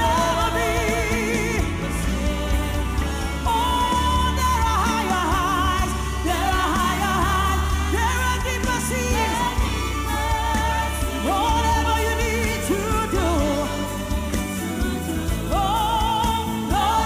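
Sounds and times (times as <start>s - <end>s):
band accompaniment: 0.0s - 17.0s
gospel choir singing: 0.0s - 17.0s
steady bass: 0.0s - 17.0s.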